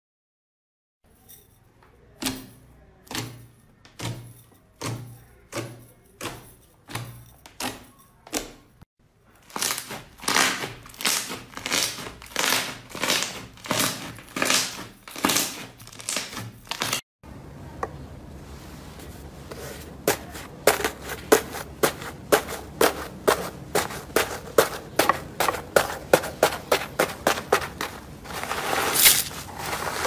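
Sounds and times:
slime crackling while kneaded: 0:09.4 - 0:17.0.

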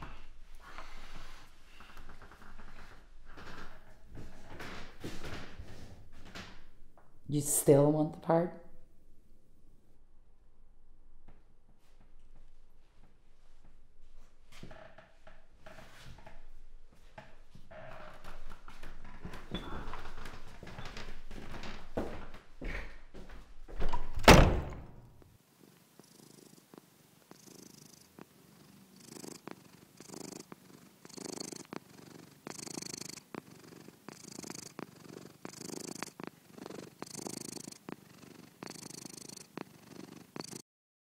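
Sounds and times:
cat purring: 0:25.5 - 0:40.6.

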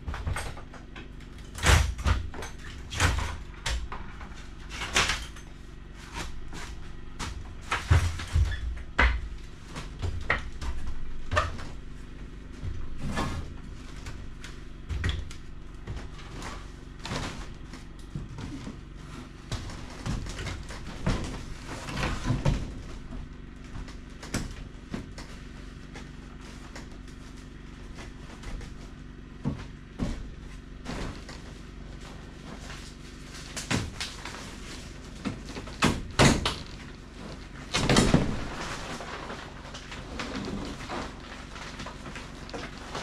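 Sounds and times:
knocks and thumps on wooden frame: 0:00.0 - 0:05.4, 0:06.0 - 0:43.0
steady low hum: 0:00.0 - 0:43.0
plastic panels scraping: 0:30.4 - 0:43.0.

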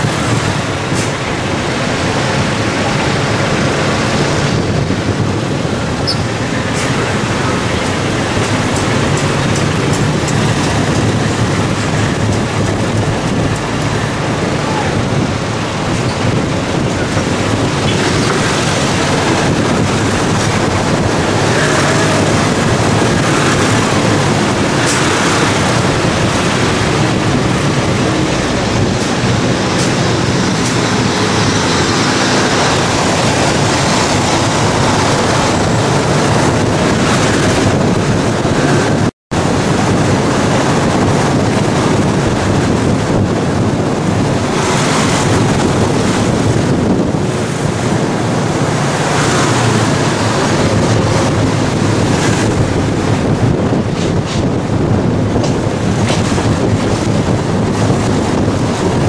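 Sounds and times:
vehicle engine and road noise: 0:00.0 - 0:59.0
wind rushing over microphone: 0:00.0 - 0:59.0.

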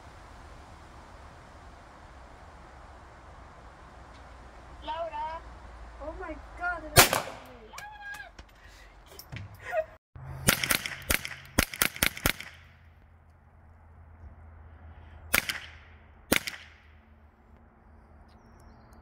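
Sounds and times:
rifle shots with echo: 0:07.0 - 0:07.6, 0:10.4 - 0:12.8, 0:15.3 - 0:17.0.

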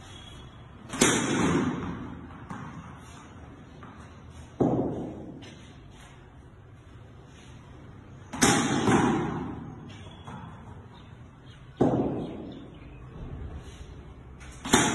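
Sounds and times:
cricket bat striking ball: 0:00.8 - 0:02.8, 0:04.6 - 0:05.4, 0:08.3 - 0:10.7, 0:11.8 - 0:12.5, 0:14.6 - 0:14.9.

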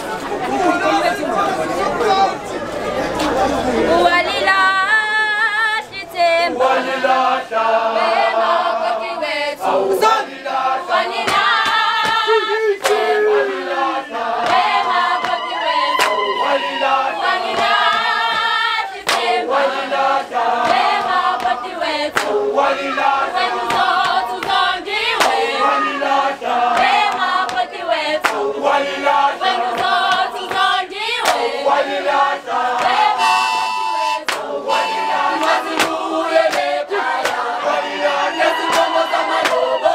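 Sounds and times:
women singing in chorus: 0:03.8 - 0:39.9
sharp hand claps: 0:11.2 - 0:13.2, 0:14.4 - 0:16.3, 0:17.5 - 0:19.4, 0:20.6 - 0:22.4, 0:25.2 - 0:25.4, 0:28.2 - 0:28.4, 0:29.7 - 0:31.5, 0:34.3 - 0:34.5, 0:35.4 - 0:37.5, 0:38.6 - 0:39.7.

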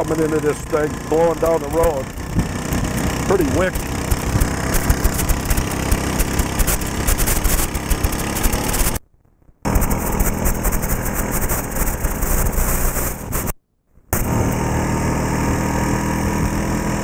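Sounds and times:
atv engine running: 0:00.0 - 0:09.0, 0:09.7 - 0:13.5, 0:14.1 - 0:17.0
wind buffeting microphone: 0:02.1 - 0:06.4.

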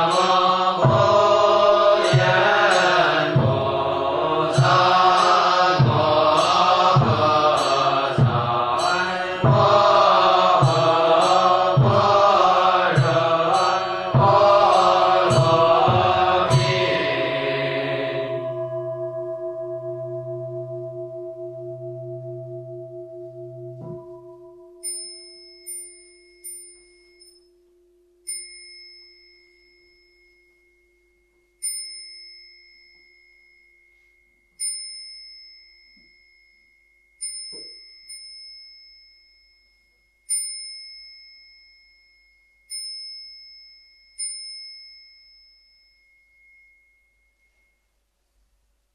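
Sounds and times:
low hum of larger bowl bell: 0:00.0 - 0:48.1
small metal bowl bell strikes: 0:18.4 - 0:47.8.

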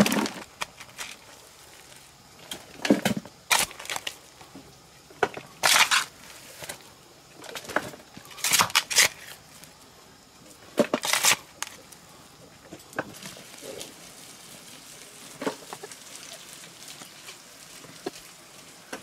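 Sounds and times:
hoe chopping and scraping soil: 0:00.0 - 0:01.3, 0:02.7 - 0:04.2, 0:05.3 - 0:06.8, 0:07.6 - 0:09.4, 0:10.8 - 0:11.8.

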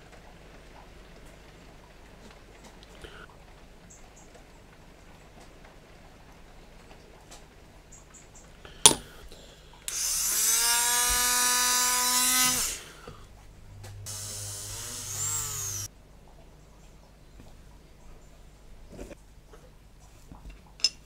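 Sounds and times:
rotary tool grinding plastic: 0:09.9 - 0:13.0, 0:14.1 - 0:15.9.

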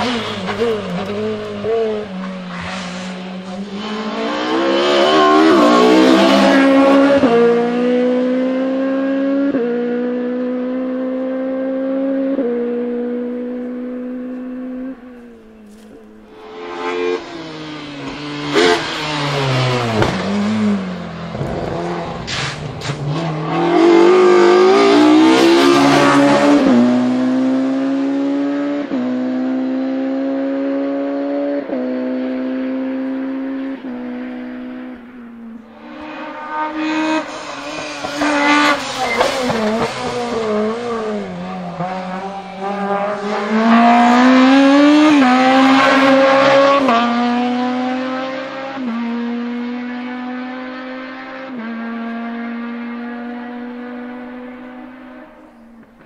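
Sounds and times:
car revving through gears: 0:00.0 - 0:56.0
race car engine accelerating: 0:00.0 - 0:56.0.

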